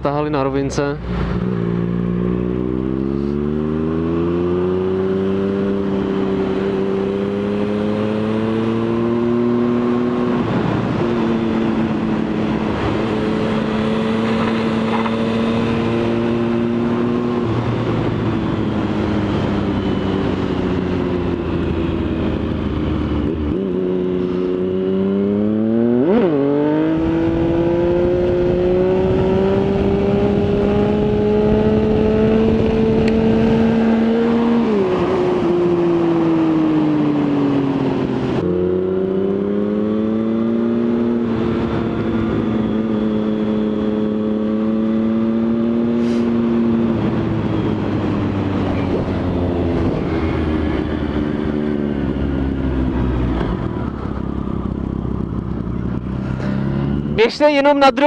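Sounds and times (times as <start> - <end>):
motorcycle engine revving: 0.4 - 58.0.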